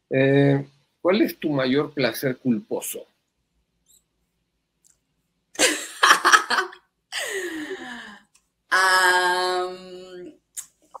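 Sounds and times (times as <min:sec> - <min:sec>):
woman laughing breathily: 0:05.6 - 0:08.2
woman sighing: 0:07.1 - 0:08.2
woman holding a vocal tone: 0:07.2 - 0:10.3.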